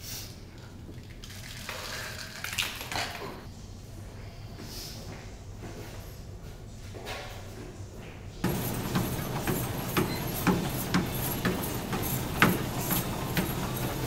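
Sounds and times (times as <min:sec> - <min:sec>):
feet thudding on treadmill belts: 0:06.9 - 0:14.0
treadmills running: 0:06.9 - 0:14.0.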